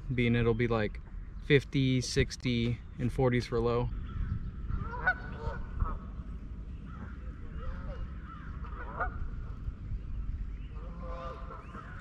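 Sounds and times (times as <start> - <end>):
steady low rumble: 0.0 - 12.0
geese honking: 4.2 - 6.2, 6.8 - 9.6, 10.7 - 12.0.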